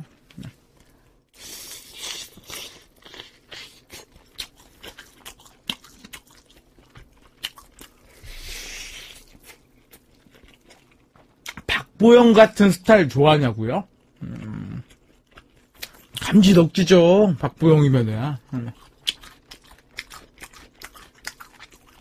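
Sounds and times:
chewing grilled chicken: 1.3 - 11.9, 13.9 - 16.6, 18.4 - 22.0.

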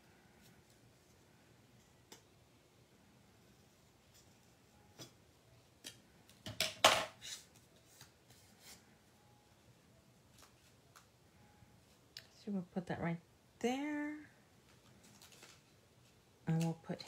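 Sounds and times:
paper handling: 14.7 - 16.8.

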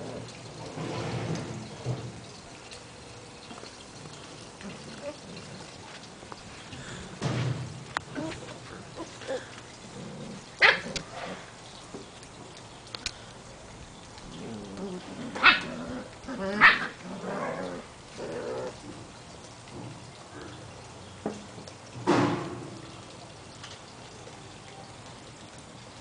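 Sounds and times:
puppy play growling: 3.5 - 7.2, 7.9 - 11.6, 14.2 - 19.1
puppy barks: 10.6 - 11.0, 15.4 - 15.8, 16.5 - 17.0.

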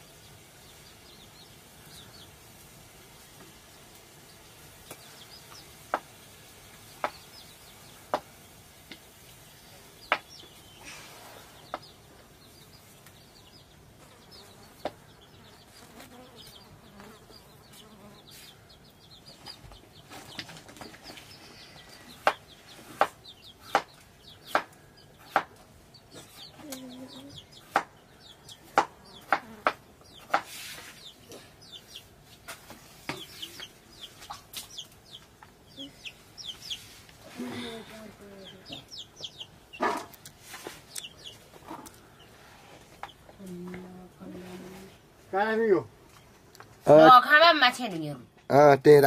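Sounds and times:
knife chopping on wooden board: 24.5 - 25.5
faint high chirping: 32.9 - 43.6.

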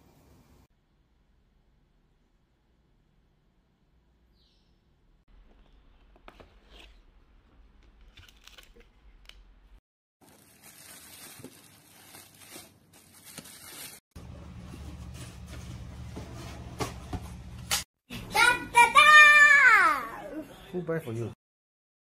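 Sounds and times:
plastic and bubble wrap crinkling: 10.2 - 16.0.

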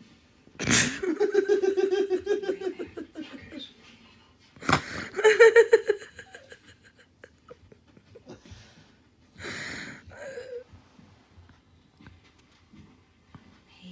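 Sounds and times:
person giggling: 0.6 - 3.6, 4.6 - 8.5
wheezing breaths: 8.3 - 10.7.

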